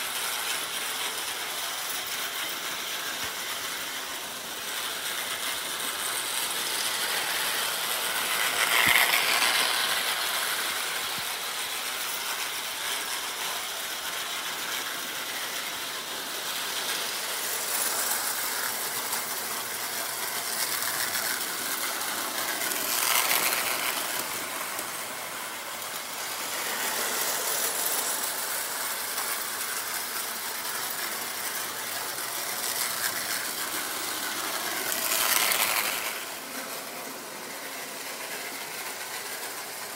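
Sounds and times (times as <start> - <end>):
toy train wheels clattering: 0.0 - 39.9.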